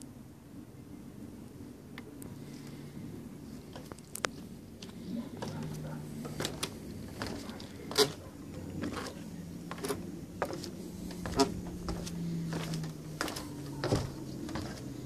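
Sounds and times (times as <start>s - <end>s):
low mechanical hum: 0.0s - 15.0s
footsteps on dirt and stone path: 3.7s - 15.0s.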